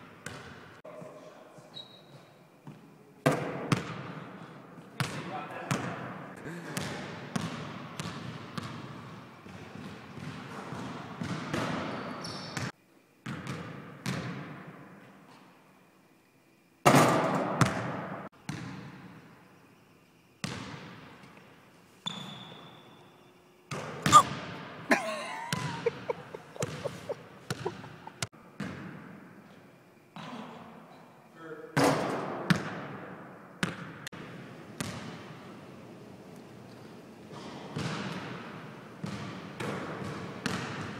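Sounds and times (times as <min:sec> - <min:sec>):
basketball bouncing on hardwood floor: 0:25.5 - 0:25.9.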